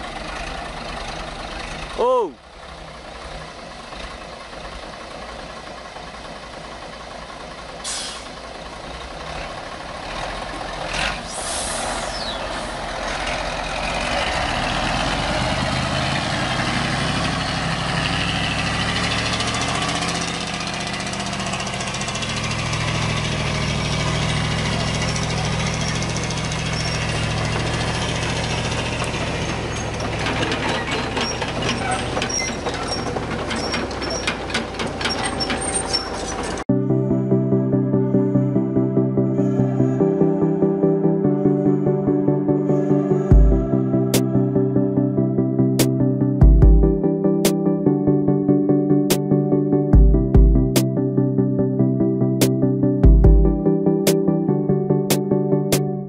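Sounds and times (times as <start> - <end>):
truck diesel engine drone: 0.0 - 56.0
rattling clatter: 25.9 - 36.6.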